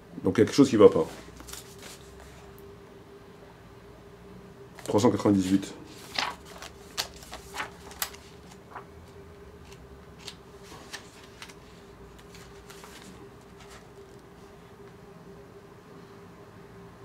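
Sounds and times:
faint steady hum: 0.0s - 17.0s
book pages rustling: 1.2s - 2.6s, 4.8s - 14.6s.

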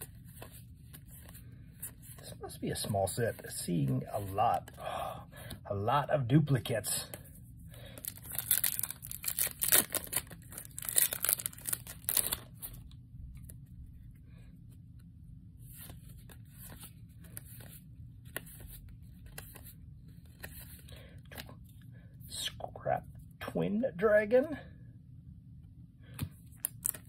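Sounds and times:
cards rustling and sliding: 0.0s - 4.8s, 7.1s - 13.6s, 14.6s - 21.9s, 26.2s - 27.0s
foil wrapper tearing and crinkling: 8.0s - 12.5s.

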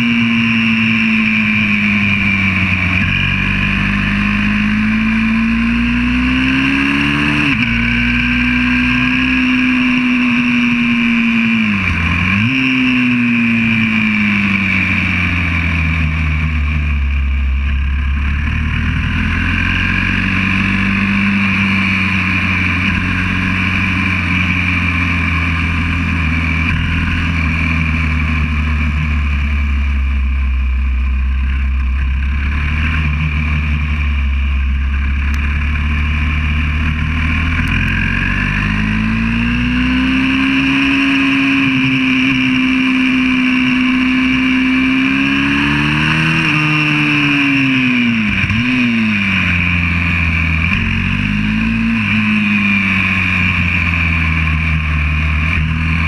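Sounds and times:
pit bike engine revving: 0.0s - 56.0s.

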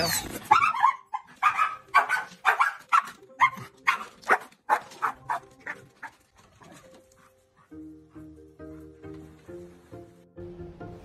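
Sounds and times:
dog barking: 0.5s - 5.8s.

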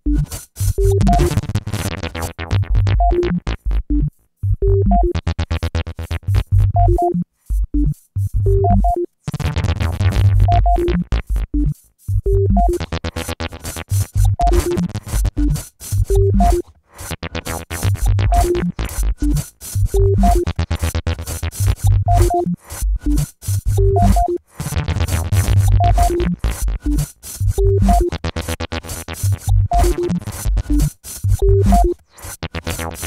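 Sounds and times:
stuttering synthesizer notes: 0.0s - 33.0s
heavy electronic bass: 2.1s - 7.0s, 9.4s - 16.6s, 17.2s - 24.2s, 24.9s - 28.2s, 29.2s - 31.9s.

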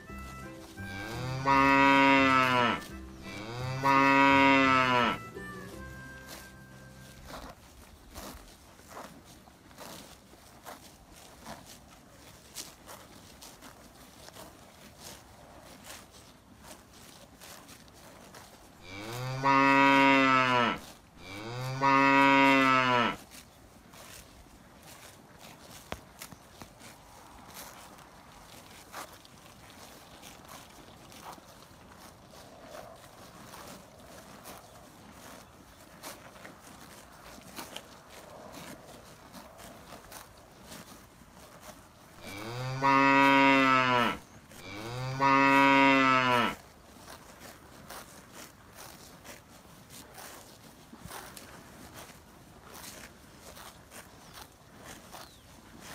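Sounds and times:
cow mooing: 0.4s - 7.2s, 18.8s - 23.2s, 42.2s - 46.6s.

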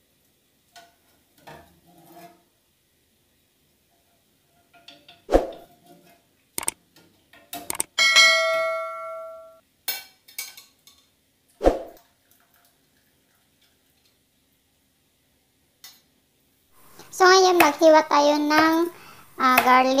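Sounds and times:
clicking sound effect: 7.7s - 7.9s
bell chime: 8.0s - 9.6s
metal spoon knocking on pan: 18.5s - 20.0s.

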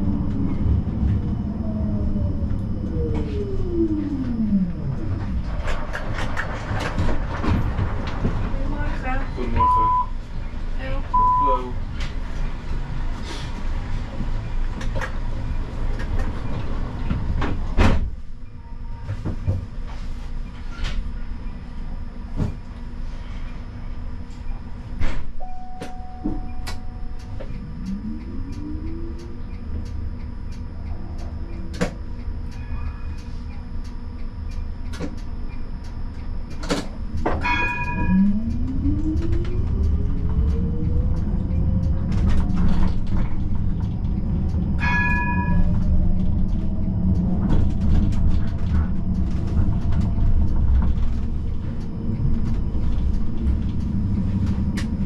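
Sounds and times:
electric traction whine rising: 0.0s - 10.7s, 19.7s - 55.0s
tram low hum: 0.0s - 55.0s
short bell-like ring: 37.4s - 38.2s.

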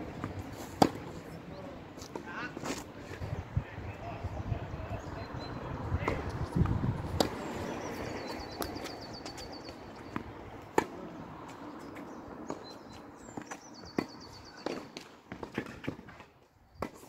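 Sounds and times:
tennis ball struck by rackets: 0.1s - 1.2s, 6.0s - 9.0s, 10.0s - 11.2s.

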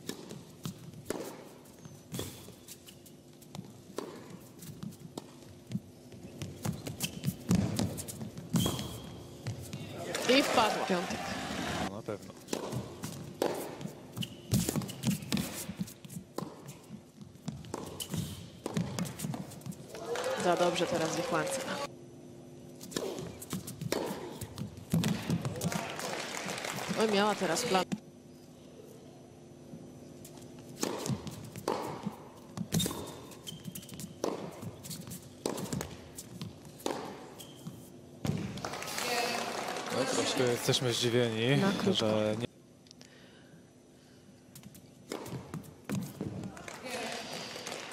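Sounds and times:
faint steady hum: 0.0s - 47.9s
tennis ball struck by rackets: 12.5s - 15.6s, 17.7s - 19.6s, 22.8s - 25.7s, 30.8s - 33.2s, 34.2s - 34.7s, 36.8s - 37.3s.

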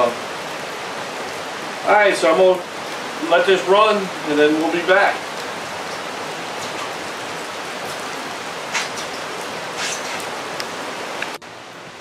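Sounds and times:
heavy rain on roof: 0.0s - 12.0s.

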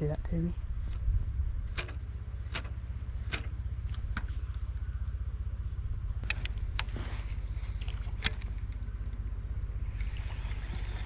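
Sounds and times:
reel clicks and ticks: 1.7s - 4.6s, 6.2s - 9.1s.

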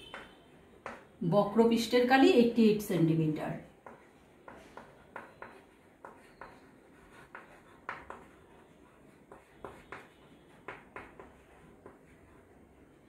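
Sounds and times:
chalk tapping and scraping on chalkboard: 0.0s - 1.2s, 3.6s - 12.9s.

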